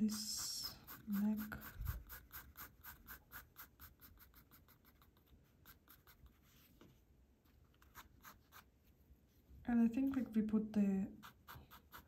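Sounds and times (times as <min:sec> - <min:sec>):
pencil strokes on paper: 0:00.0 - 0:07.0, 0:11.1 - 0:12.0.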